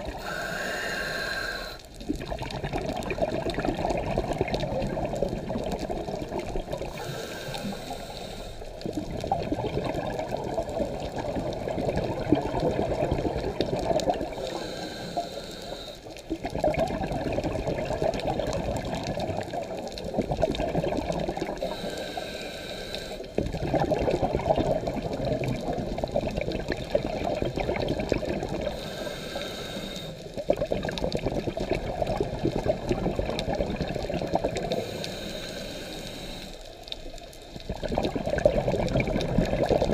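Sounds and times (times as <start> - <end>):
regulator inhale hiss: 0.1 - 2.0, 6.8 - 8.8, 14.2 - 16.2, 21.6 - 23.4, 28.6 - 30.4, 34.7 - 36.9.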